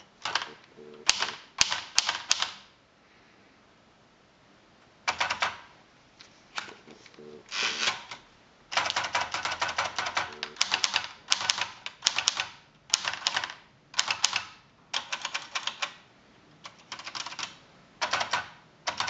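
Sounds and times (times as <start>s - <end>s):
manual typewriter keystrokes: 0.0s - 2.7s, 5.1s - 5.7s, 7.5s - 16.0s, 16.6s - 19.0s.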